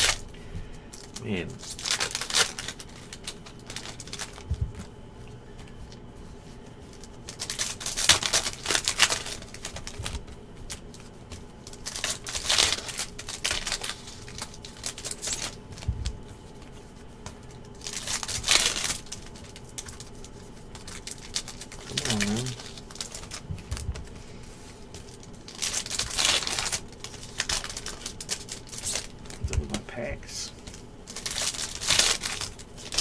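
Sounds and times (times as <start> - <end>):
foil wrappers crinkling and tearing: 0.0 - 4.9, 5.5 - 33.0
card handling: 0.0 - 33.0
soft low thumps: 4.4 - 4.9, 15.8 - 16.2, 23.4 - 24.2.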